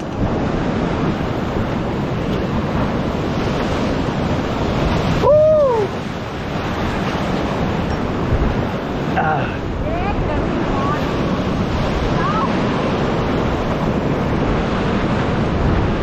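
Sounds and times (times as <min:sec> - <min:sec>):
whitewater rushing: 0:00.0 - 0:16.0
wind buffeting microphone: 0:00.0 - 0:16.0
person shouting: 0:05.2 - 0:06.0.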